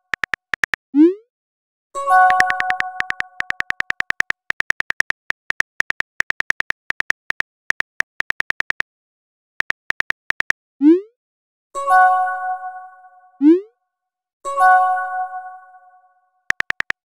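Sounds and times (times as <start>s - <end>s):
phone keyboard clicks: 0.0s - 0.8s, 2.3s - 8.8s, 9.6s - 10.6s, 16.5s - 17.0s.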